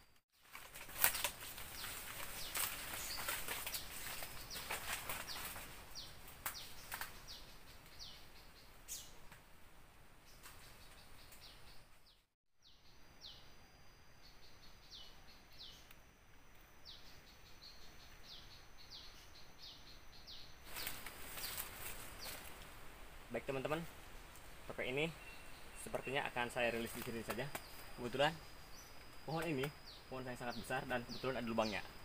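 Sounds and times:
loud rustle: 0:00.4 - 0:05.8, 0:20.7 - 0:22.8
bird chirping: 0:01.0 - 0:09.3, 0:10.3 - 0:16.0, 0:16.6 - 0:22.5, 0:24.6 - 0:32.0.

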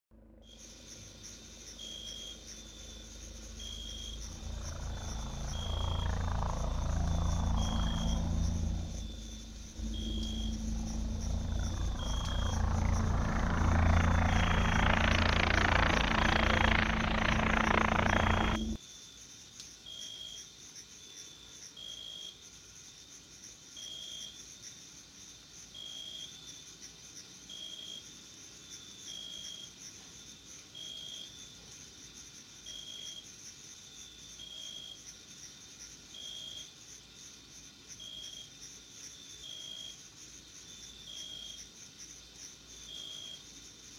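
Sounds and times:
beetle wings buzzing: 0:03.1 - 0:18.8.

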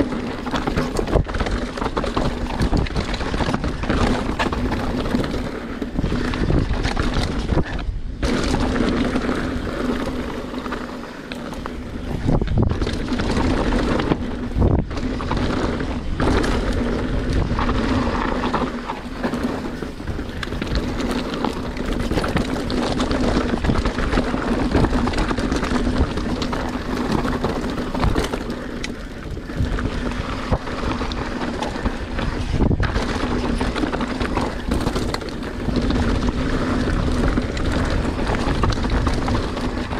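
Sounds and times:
bike rattling: 0:00.0 - 0:39.9
bike wheels striking stones: 0:00.0 - 0:39.9
tyres rolling over dirt and rock: 0:00.0 - 0:39.9
wind buffeting microphone: 0:00.0 - 0:39.9.

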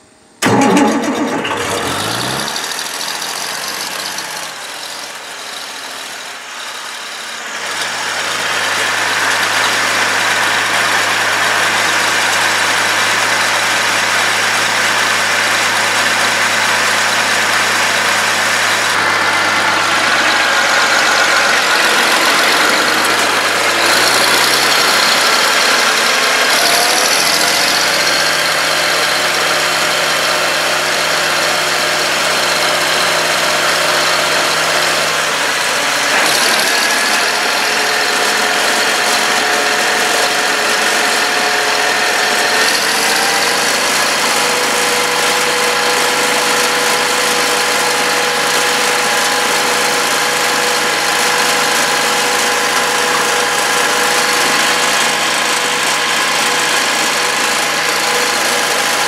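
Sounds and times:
diesel tractor engine running: 0:00.0 - 0:59.0.

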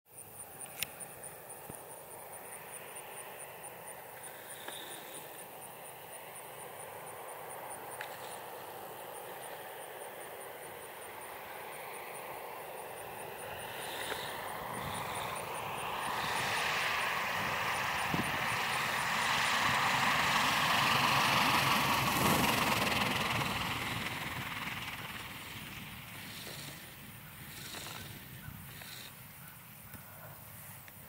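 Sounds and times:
distant airplane engine droning: 0:00.1 - 0:31.0
insect ticking: 0:26.2 - 0:29.6.

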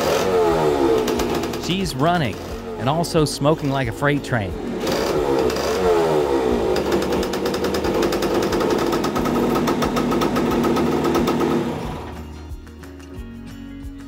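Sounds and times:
two-stroke engine popping idle: 0:00.0 - 0:03.8, 0:04.8 - 0:12.2.

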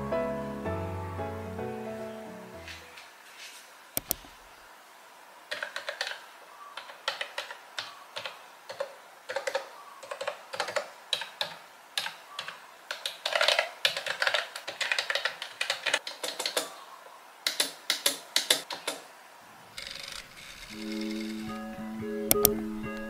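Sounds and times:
keyboard key clicks: 0:04.0 - 0:04.3.

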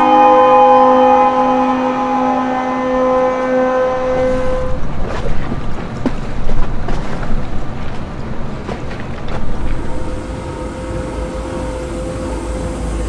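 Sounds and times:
ship's horn blast: 0:00.0 - 0:05.0, 0:09.6 - 0:13.0
wind and water noise: 0:04.0 - 0:13.0.

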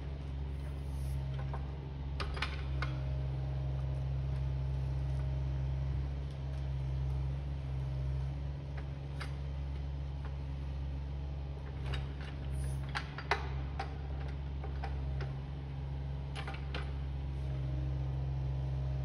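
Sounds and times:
distant excavator engine running: 0:00.0 - 0:19.0.

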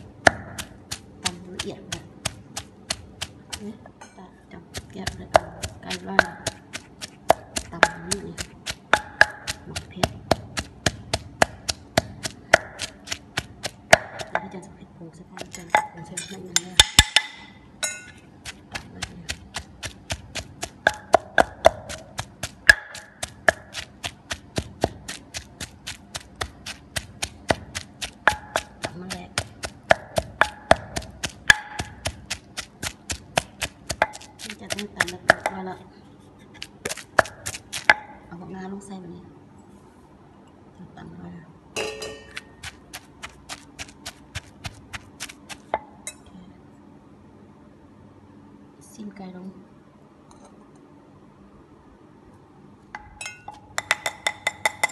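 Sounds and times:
pestle pounding in a mortar: 0:00.0 - 0:03.8, 0:04.6 - 0:14.6, 0:15.4 - 0:17.4, 0:18.4 - 0:35.6, 0:36.5 - 0:38.3, 0:41.8 - 0:46.0, 0:53.0 - 0:54.9.

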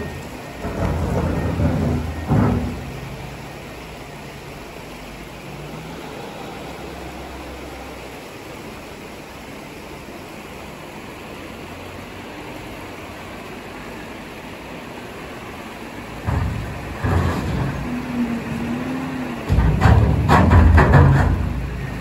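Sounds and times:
rock rumbling and knocking: 0:00.0 - 0:03.3, 0:16.2 - 0:18.8, 0:19.4 - 0:22.0
diesel engine running: 0:00.0 - 0:22.0.

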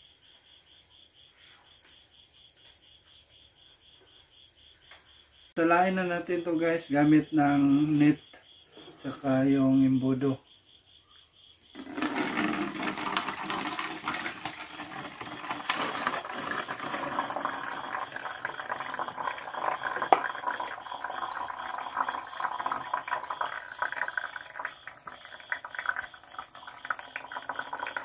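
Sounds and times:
juice splashing and trickling: 0:11.8 - 0:28.0.

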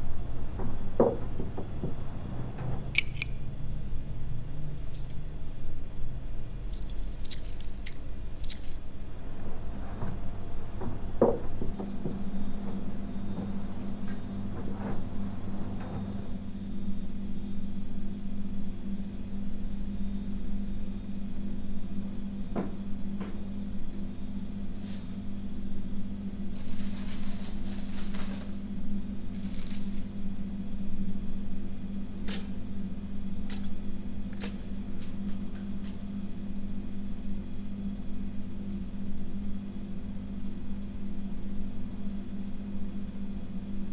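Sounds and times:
steady low hum: 0:00.0 - 0:43.9
soft footsteps: 0:26.5 - 0:28.6, 0:29.3 - 0:30.2
packet wrapper crinkling and tearing: 0:26.6 - 0:28.6, 0:29.4 - 0:30.1.

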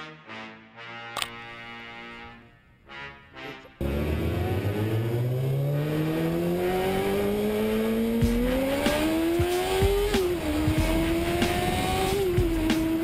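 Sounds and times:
motorcycle engine accelerating hard: 0:03.8 - 0:13.0
wind noise: 0:10.2 - 0:13.0.

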